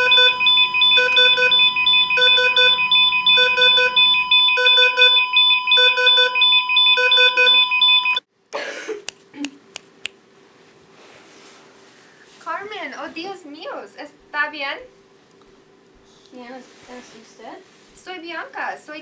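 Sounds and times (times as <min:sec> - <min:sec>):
rapid electronic beeps: 0:00.0 - 0:08.2
steady high electronic tones: 0:00.0 - 0:08.2.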